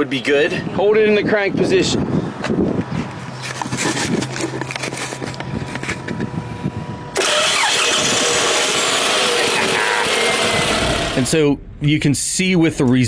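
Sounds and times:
car engine cranking and starting: 7.0 - 11.8.

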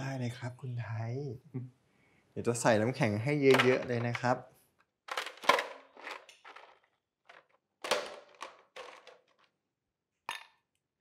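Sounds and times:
ice cubes clattering into glass: 7.9 - 9.4.

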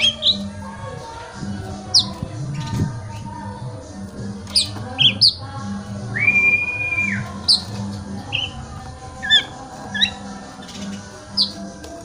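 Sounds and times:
bird calling with sharp notes: 4.5 - 5.5, 6.1 - 11.6
long level bird whistle: 6.1 - 7.7.

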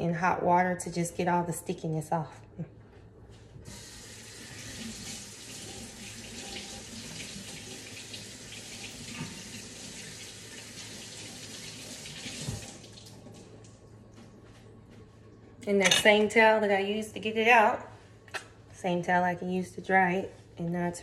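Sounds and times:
faucet water running: 3.7 - 13.8.

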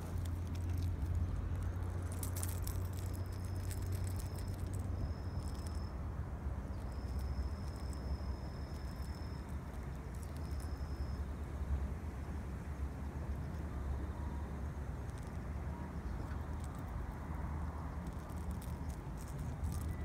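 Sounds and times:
low outdoor rumble: 0.0 - 20.0
insect trilling: 0.2 - 6.0, 6.7 - 11.3.

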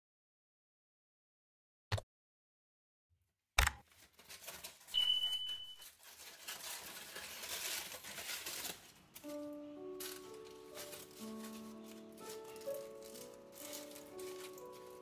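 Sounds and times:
aluminium foil crinkling: 3.8 - 15.0
high beep: 5.0 - 5.8.

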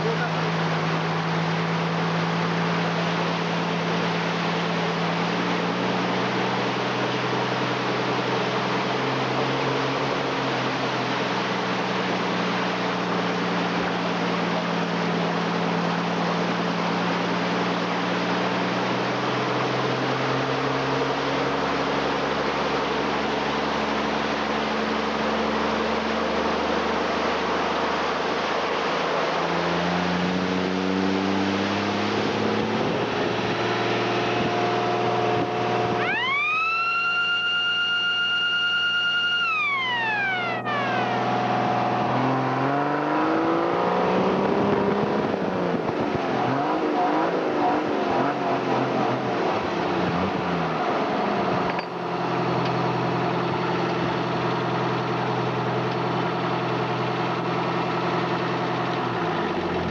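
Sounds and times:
siren-like wail: 35.4 - 44.4.

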